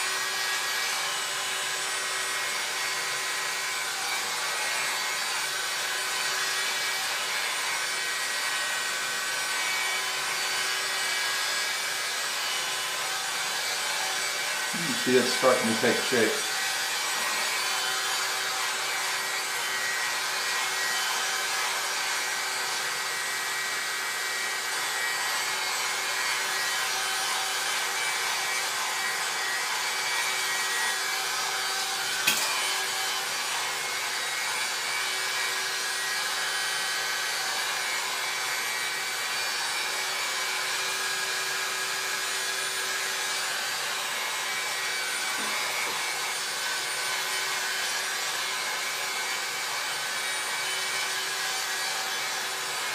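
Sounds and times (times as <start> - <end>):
hot-air brush fan humming: 0.0 - 35.6, 41.9 - 48.1.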